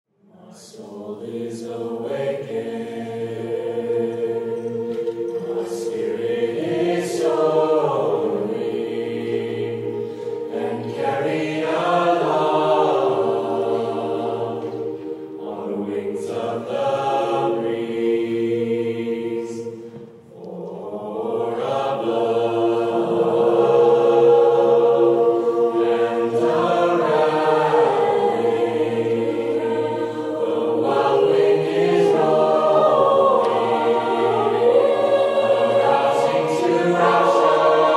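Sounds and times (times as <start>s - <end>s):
choir singing a cappella: 0.2s - 37.9s
voices humming: 0.8s - 37.9s.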